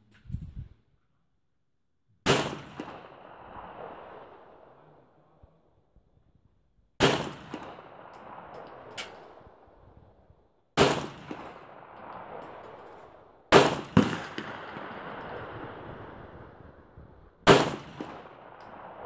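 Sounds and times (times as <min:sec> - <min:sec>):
pistol shots with echo: 0:02.3 - 0:04.2, 0:07.0 - 0:09.5, 0:10.8 - 0:15.9, 0:17.5 - 0:19.0.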